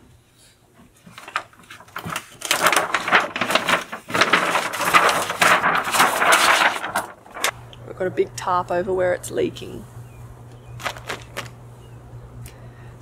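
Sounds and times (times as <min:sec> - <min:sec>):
plastic tarp crackling: 0:01.0 - 0:07.6, 0:10.8 - 0:11.6.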